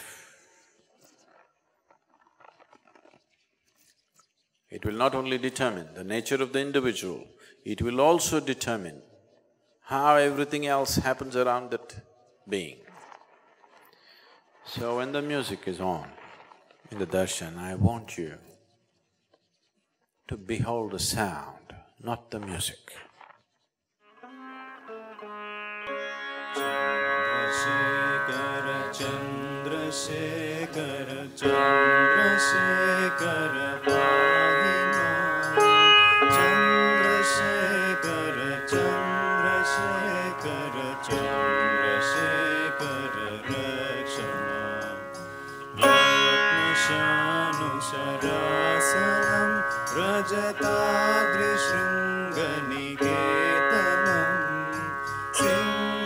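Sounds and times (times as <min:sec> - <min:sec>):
sitar playing: 0:24.1 - 0:56.0
steady drone: 0:26.6 - 0:56.0
man singing: 0:27.3 - 0:56.0.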